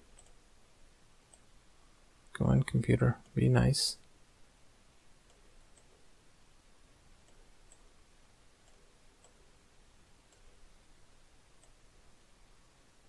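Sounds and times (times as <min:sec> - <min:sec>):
room hiss: 0:00.0 - 0:13.0
computer mouse clicks: 0:00.1 - 0:00.4, 0:01.3 - 0:01.5, 0:05.2 - 0:06.0, 0:07.2 - 0:07.9, 0:08.6 - 0:09.5, 0:10.2 - 0:10.6, 0:11.6 - 0:11.8.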